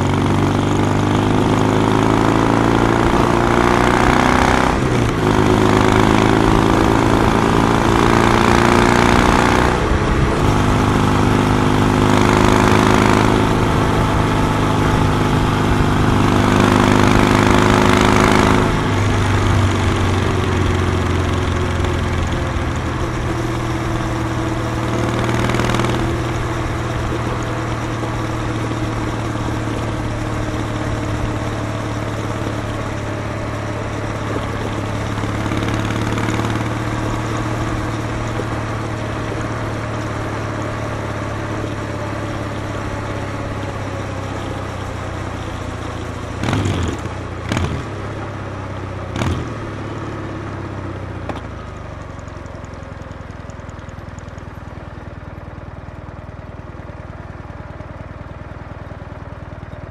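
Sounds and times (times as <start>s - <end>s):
motorcycle engine idling: 18.7s - 59.9s.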